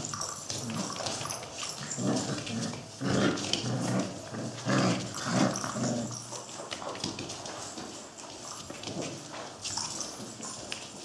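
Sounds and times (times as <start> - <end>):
puppies growling and yapping: 0.0 - 7.0
claws clicking on tiled floor: 0.0 - 11.0.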